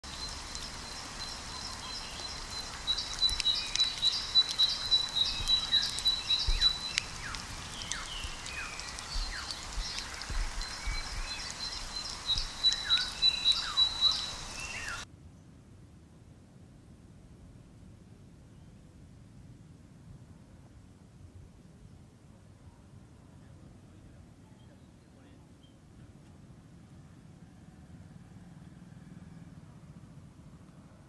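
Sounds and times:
small birds chirping: 0.0s - 15.1s
steady hiss: 0.0s - 15.1s.

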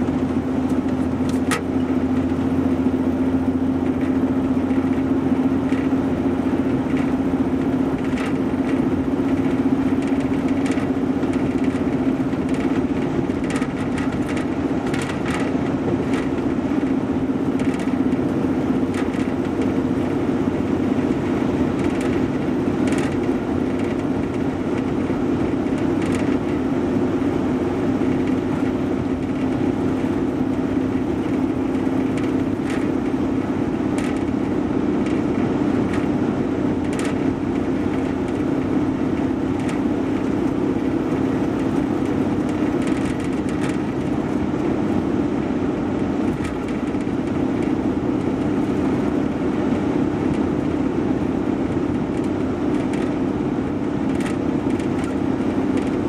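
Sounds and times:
car road noise drone: 0.0s - 56.0s
light ticks and rattles: 6.9s - 19.7s, 36.8s - 44.2s, 54.1s - 56.0s.

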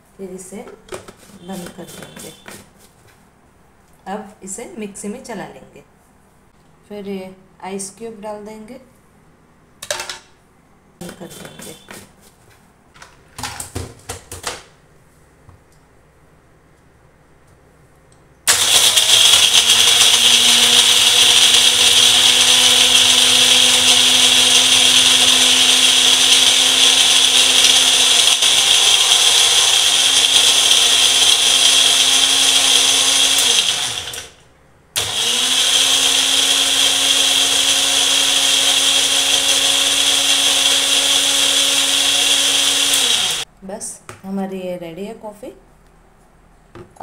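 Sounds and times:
blender motor running: 18.5s - 34.4s, 35.0s - 43.4s.

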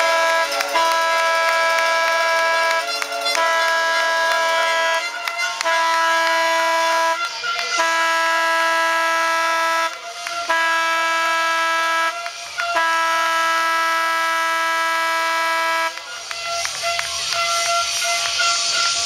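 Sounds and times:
arena horn blasts: 0.0s - 19.0s.

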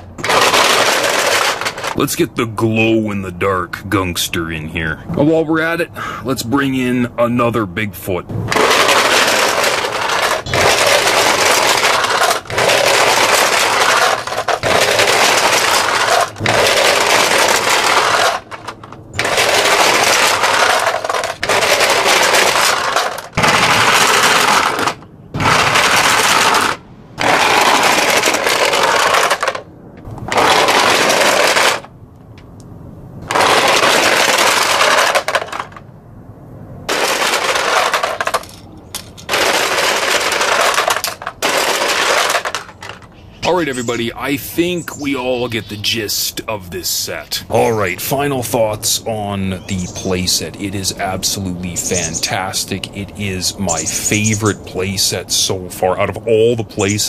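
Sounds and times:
toy trucks rattling down plastic track: 0.0s - 2.2s, 8.5s - 31.9s, 33.2s - 35.8s, 36.9s - 44.4s.

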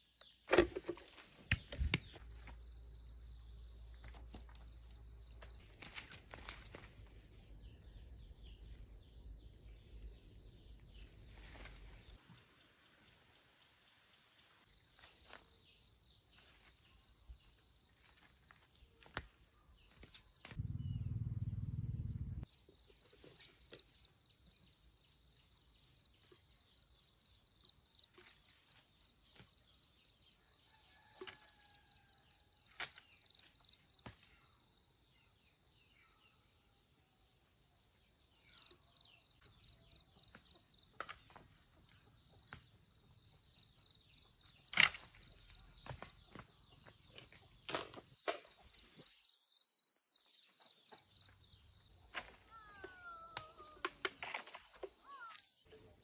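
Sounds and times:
insects chirring: 37.8s - 56.0s.

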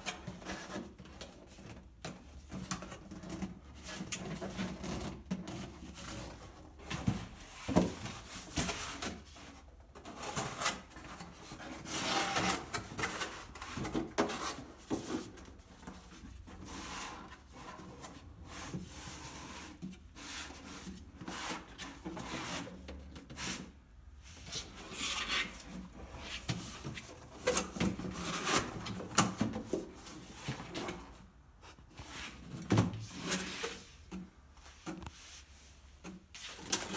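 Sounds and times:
cardboard scraping and sliding: 10.1s - 36.9s.

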